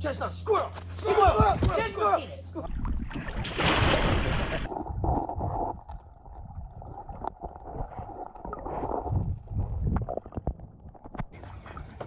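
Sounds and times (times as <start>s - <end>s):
water splashing: 2.7s - 12.0s.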